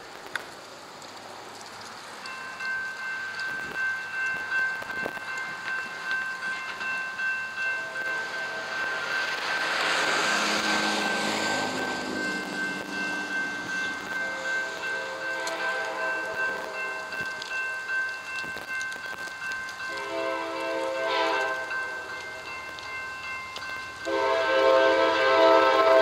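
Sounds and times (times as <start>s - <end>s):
railroad crossing bells ringing: 1.8s - 26.0s
faint locomotive horn: 14.2s - 16.9s, 19.9s - 21.8s, 24.0s - 26.0s.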